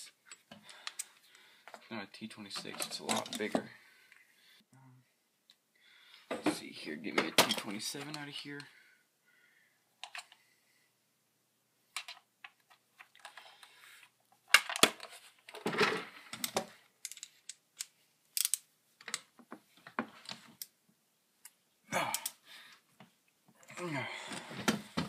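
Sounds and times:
metal tools clicking and clattering: 0:02.6 - 0:03.6.

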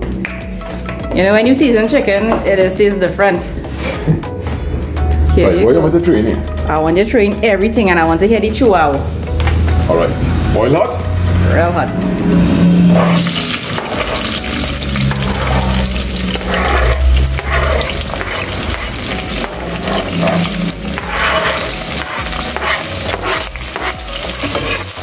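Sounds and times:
vegetables sizzling in hot oil: 0:13.0 - 0:25.0.

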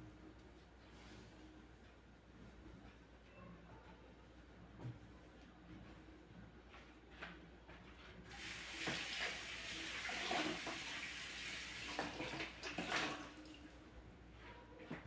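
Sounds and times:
tap running into sink: 0:08.7 - 0:09.4.

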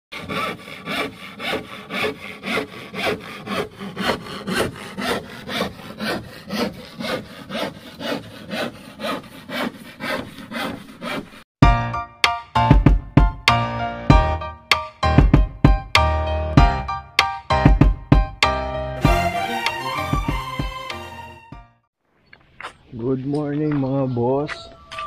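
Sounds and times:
handsaw cutting plywood: 0:00.1 - 0:11.5, 0:19.0 - 0:21.4
music: 0:11.6 - 0:21.9.

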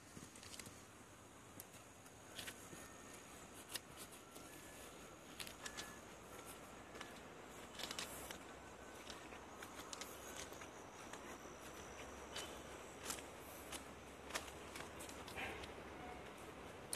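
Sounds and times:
footsteps on ballast: 0:03.9 - 0:15.7.

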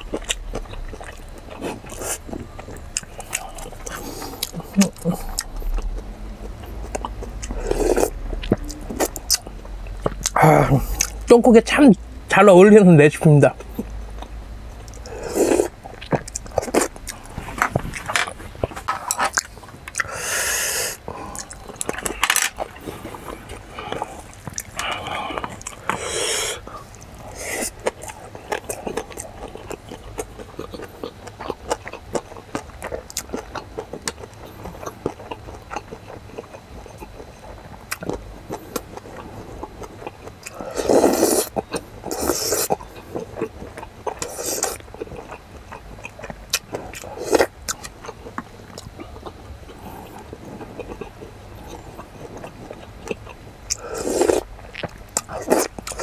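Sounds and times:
man chewing: 0:00.0 - 0:11.8, 0:13.6 - 0:56.0
loud breaths: 0:20.0 - 0:21.5, 0:22.8 - 0:27.7.

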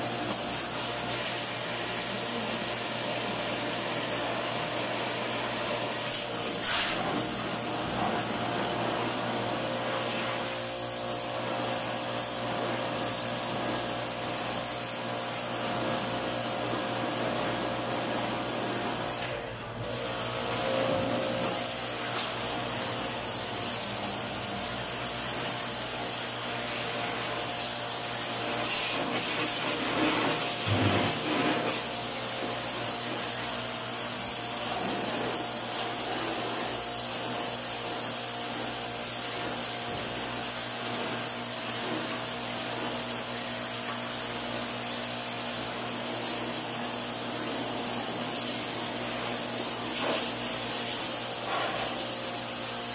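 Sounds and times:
pressure washer spraying: 0:00.0 - 0:52.9.

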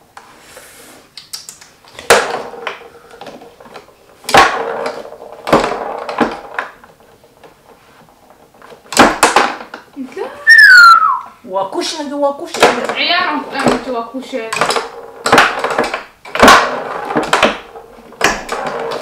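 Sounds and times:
foosball clacks and rattles: 0:02.0 - 0:09.9, 0:12.5 - 0:19.0.

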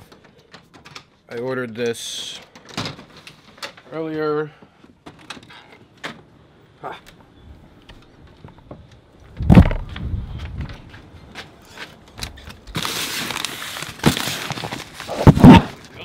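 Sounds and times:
paper mailer crinkling: 0:12.6 - 0:16.0.

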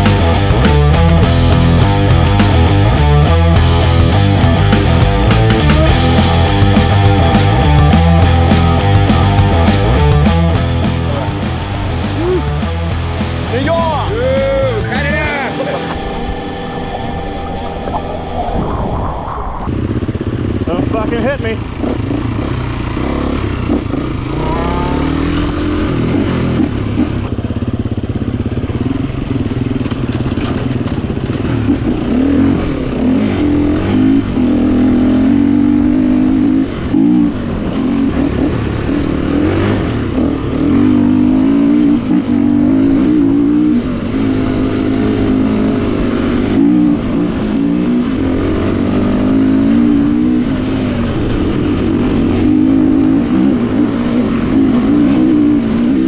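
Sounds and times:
dirt bike engine revving: 0:00.0 - 0:17.7, 0:19.7 - 0:56.0.

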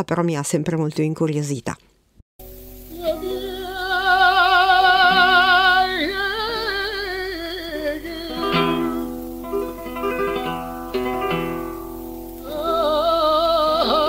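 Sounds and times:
man singing with vibrato: 0:02.9 - 0:10.5, 0:12.4 - 0:14.0
plucked guitar notes: 0:08.2 - 0:12.9.

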